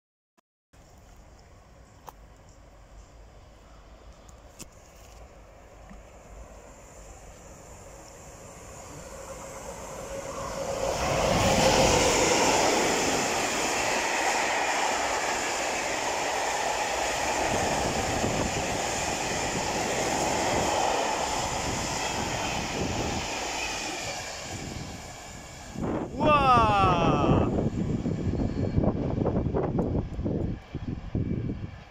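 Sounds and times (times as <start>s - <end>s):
electric locomotive passing: 1.4s - 31.9s.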